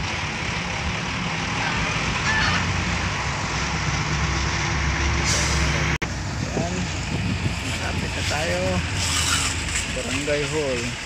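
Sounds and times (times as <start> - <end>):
road rumble: 0.0 - 11.0
truck engine running: 0.0 - 11.0
wind noise: 1.9 - 10.0.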